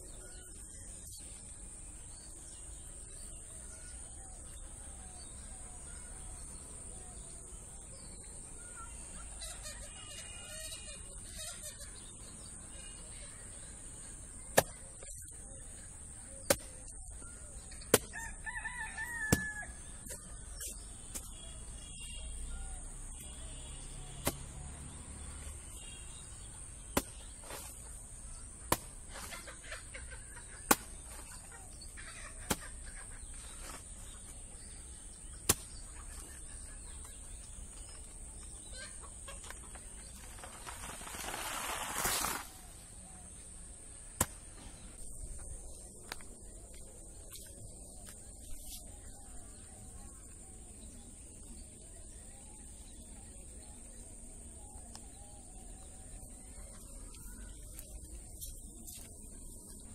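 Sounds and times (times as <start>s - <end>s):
rooster crowing: 18.1s - 19.8s
rustling: 39.6s - 42.7s.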